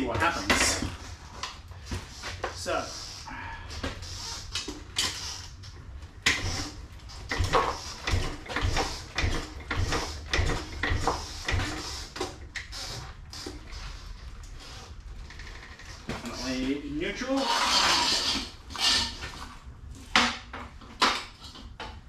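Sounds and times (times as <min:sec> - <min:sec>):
motorcycle clunks and rattles: 0:07.3 - 0:11.8.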